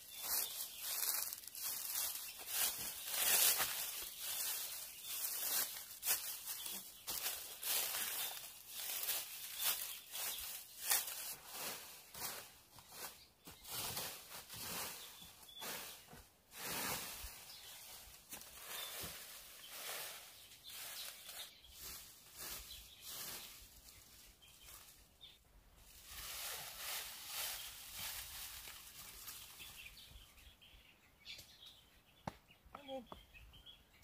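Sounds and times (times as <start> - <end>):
rustling and scuffing: 0.0 - 30.2.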